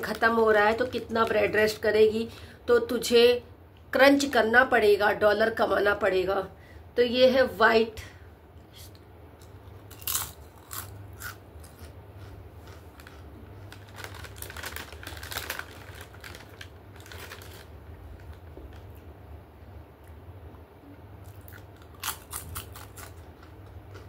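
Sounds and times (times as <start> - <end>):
crunchy chewing: 9.4 - 17.6, 21.2 - 24.0.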